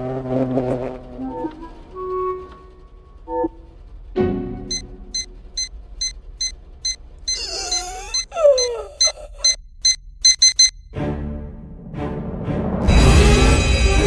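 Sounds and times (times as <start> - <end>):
music: 0.8 - 6.1, 10.8 - 14.0
alarm clock beeping: 4.7 - 10.9.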